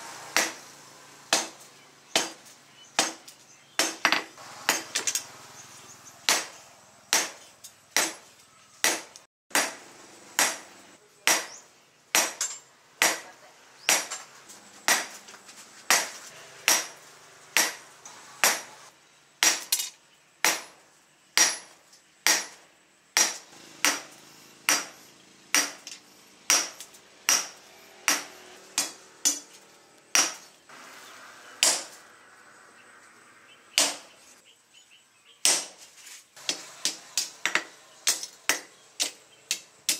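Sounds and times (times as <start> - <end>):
hammer striking metal on anvil: 15.9 - 17.0, 24.7 - 29.5.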